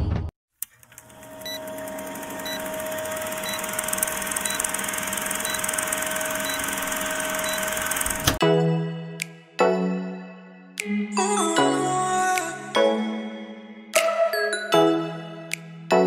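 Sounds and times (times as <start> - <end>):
projector whirr and clatter: 0.7 - 8.4.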